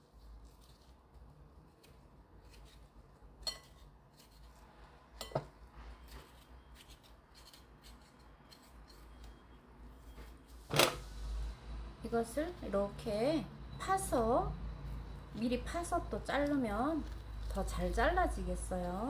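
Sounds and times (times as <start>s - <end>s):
spoon scraping squash: 0.0s - 10.6s.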